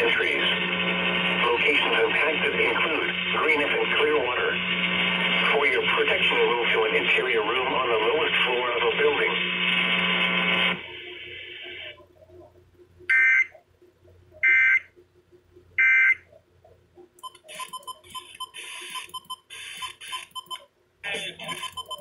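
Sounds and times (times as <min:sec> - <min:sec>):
fm radio snatches: 0:00.0 - 0:12.0.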